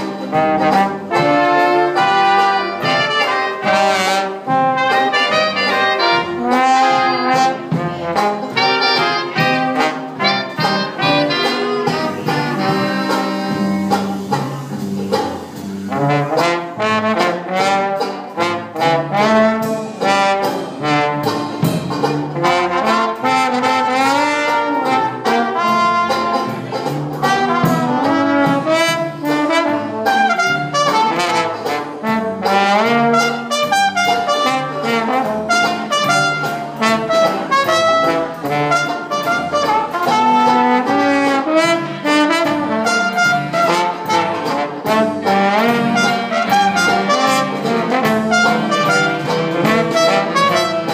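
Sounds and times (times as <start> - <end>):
jazz band playing: 0.0 - 50.9
trombone and trumpet melody: 0.0 - 50.9.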